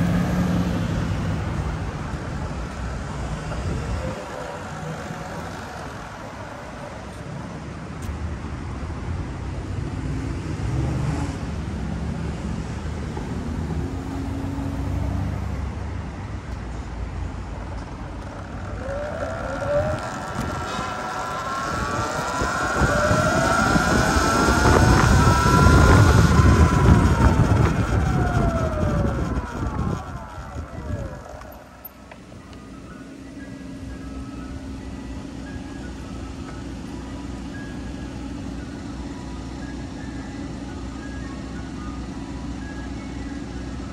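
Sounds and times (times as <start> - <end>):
street traffic rumble: 0.0 - 43.9
wind and tyre noise: 0.0 - 43.9
electric motor whine: 0.1 - 7.3, 17.6 - 40.2.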